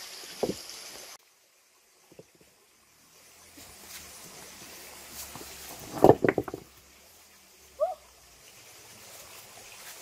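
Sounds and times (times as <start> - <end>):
stones knocking together: 5.2 - 6.7.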